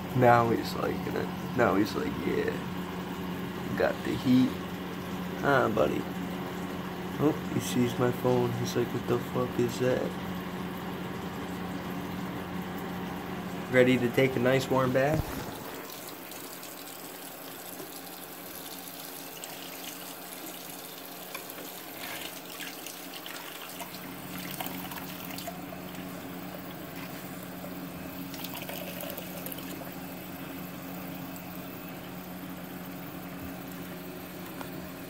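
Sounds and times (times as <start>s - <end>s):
tap water splashing into basin: 15.9s - 26.1s.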